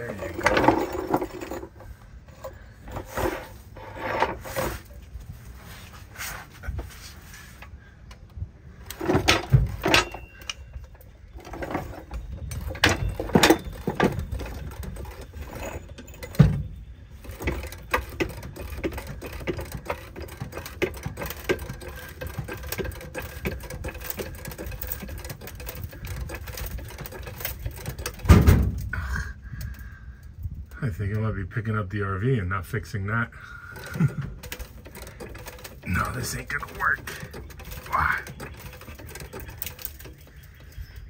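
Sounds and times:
jack heavy knocks and clanks: 8.9 - 28.9.

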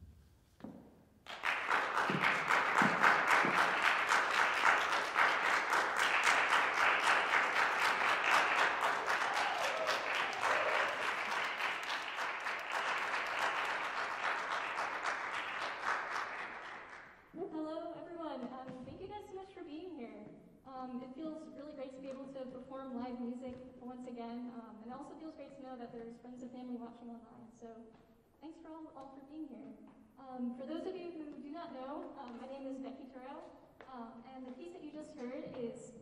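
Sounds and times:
audience applauding: 1.3 - 17.2.

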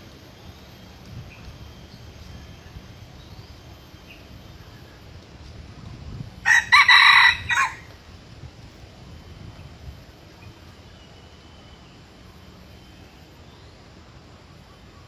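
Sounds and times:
rooster crowing: 6.4 - 7.9.

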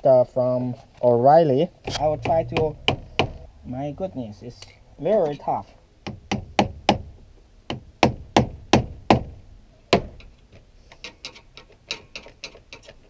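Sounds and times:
hammer knocking on screwdriver: 1.9 - 3.4.

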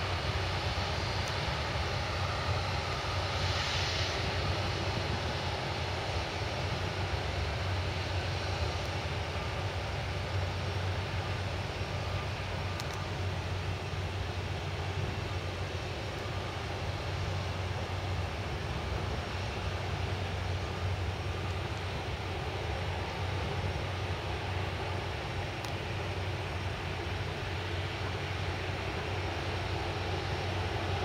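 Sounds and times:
distant jet engines running: 0.0 - 31.0.

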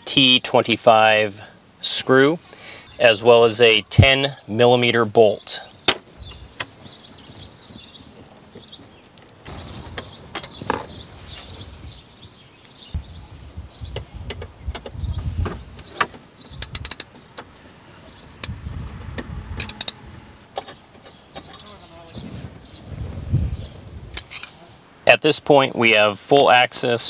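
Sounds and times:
ratchet clicks: 16.6 - 17.2, 19.6 - 20.0.

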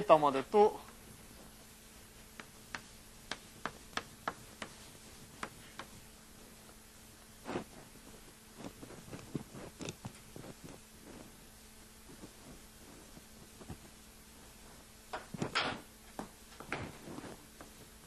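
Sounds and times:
faint steady hum: 0.0 - 18.0
chalk tapping on blackboard: 2.4 - 6.0.

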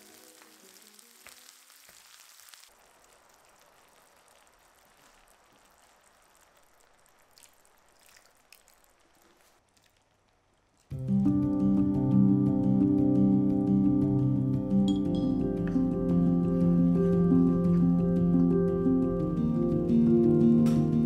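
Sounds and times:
food sizzling in a pan: 0.0 - 9.6
background music: 10.9 - 21.0.

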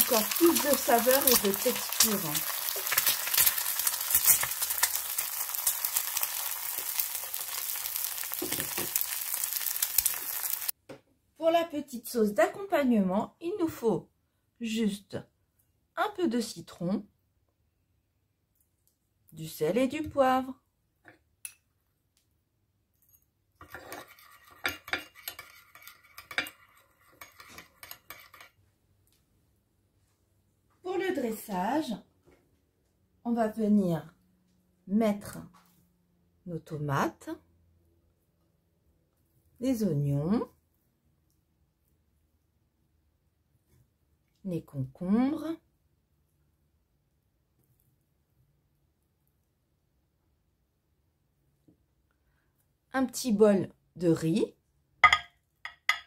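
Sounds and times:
crackles and pops: 0.0 - 10.7
egg sizzling in oil: 0.0 - 10.8, 23.6 - 28.6
spoon scraping ceramic bowl: 23.0 - 28.6.

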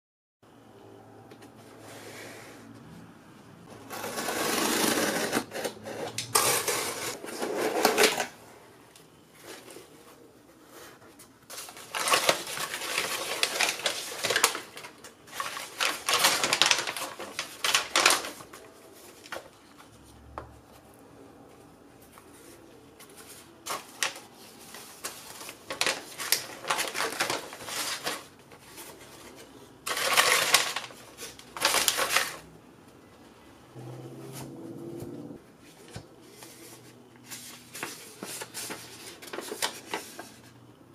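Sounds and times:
paper packing crinkling: 3.8 - 8.4, 9.1 - 20.2, 21.6 - 32.5, 35.6 - 40.7.

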